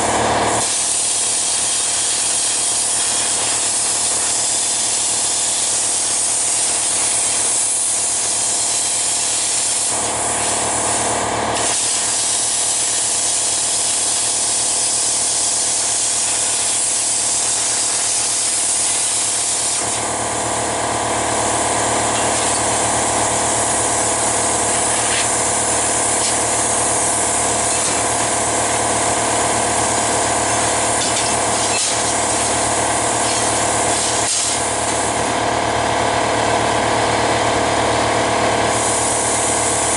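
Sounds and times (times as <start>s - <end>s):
plasma cutter torch hissing: 0.0s - 35.6s, 38.6s - 39.9s
steady hum: 12.8s - 39.9s.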